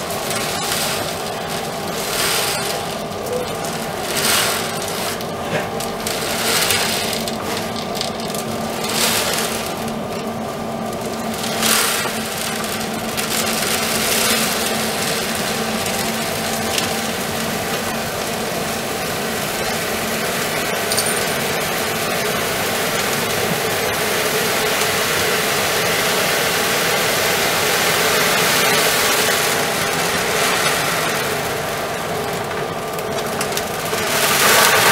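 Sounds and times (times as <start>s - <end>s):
litter box drum motor hum: 0.0s - 34.9s.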